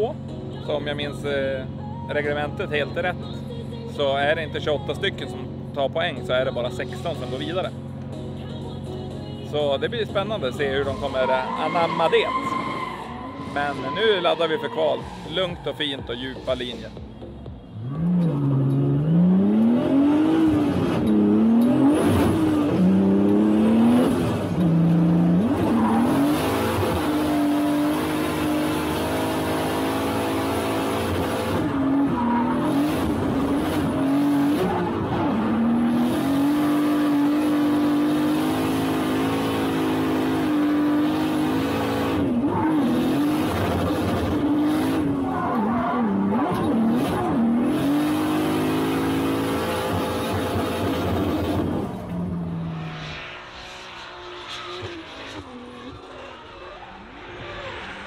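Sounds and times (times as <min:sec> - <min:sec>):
car engine revving: 0:09.8 - 0:58.0
tyres screeching: 0:10.7 - 0:16.1.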